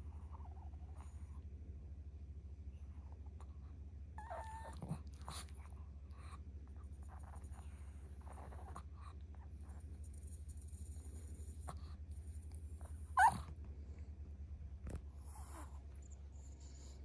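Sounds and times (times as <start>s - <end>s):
dog whining and whimpering: 4.2s - 5.4s, 13.0s - 13.5s.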